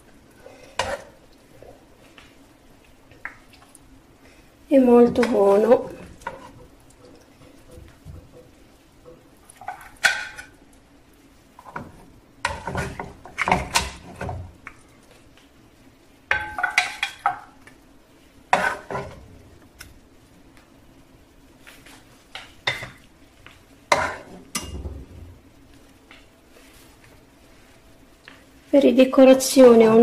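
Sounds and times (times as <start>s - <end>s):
utensils scraping a frying pan: 6.1s - 6.7s, 12.4s - 14.4s, 18.5s - 19.2s, 23.9s - 24.8s.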